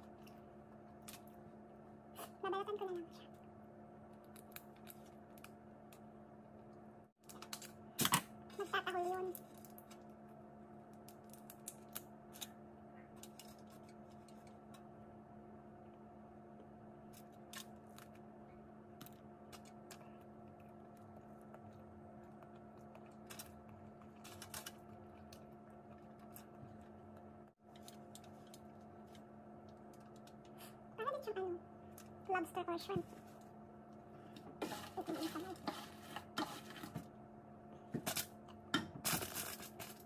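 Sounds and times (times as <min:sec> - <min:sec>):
faint steady hum: 0:00.0 - 0:40.0
shells cracking and peeling: 0:04.0 - 0:06.1, 0:10.9 - 0:12.6.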